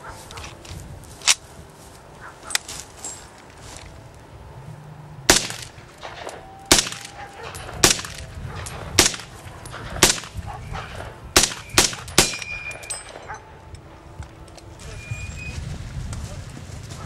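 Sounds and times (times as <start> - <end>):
rifle shots: 5.3 - 13.4.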